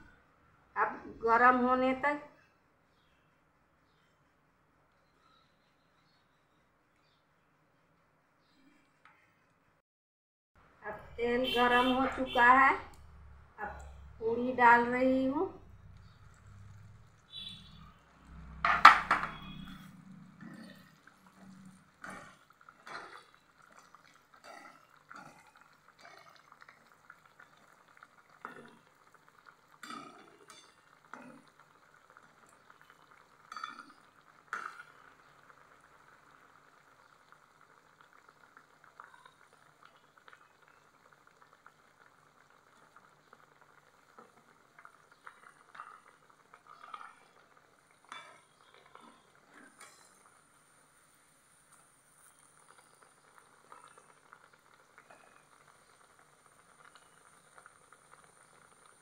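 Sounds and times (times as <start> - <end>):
hot oil bubbling: 10.6 - 59.0
metal spatula scraping pan: 49.5 - 50.2.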